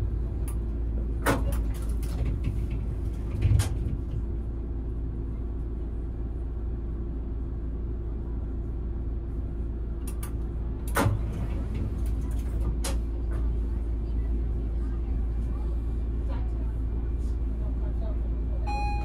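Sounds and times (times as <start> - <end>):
tram equipment humming: 0.0 - 19.0.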